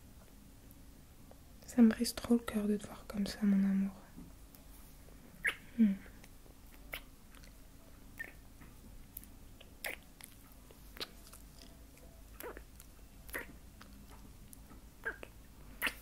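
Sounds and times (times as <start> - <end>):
soft kissing lip smacks: 6.7 - 7.5, 8.2 - 8.4, 9.6 - 11.4, 13.3 - 13.9, 15.0 - 16.0.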